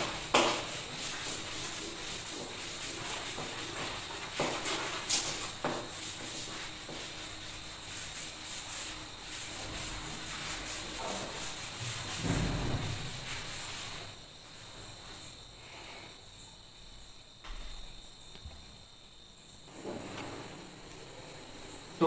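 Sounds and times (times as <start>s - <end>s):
duster rubbing on chalkboard: 0.0s - 16.1s.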